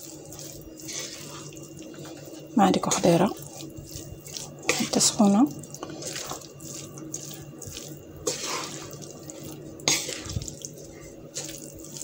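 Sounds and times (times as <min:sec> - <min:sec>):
wooden spoon stirring rice in pan: 0:00.0 - 0:12.0
sharp scrapes on pan: 0:08.2 - 0:09.0.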